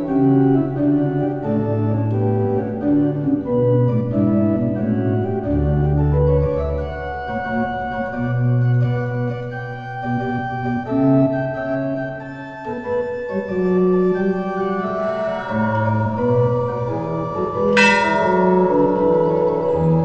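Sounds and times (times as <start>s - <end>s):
organ playing sustained chords: 0.0s - 20.0s
bell ringing: 14.8s - 20.0s.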